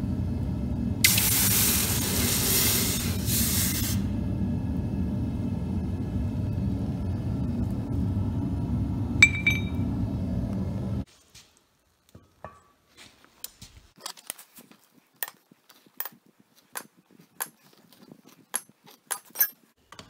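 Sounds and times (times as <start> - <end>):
furnace burner rumble: 0.0 - 11.1
hot metal hissing in water: 1.0 - 4.1
metal bar clinking on concrete: 9.2 - 9.8.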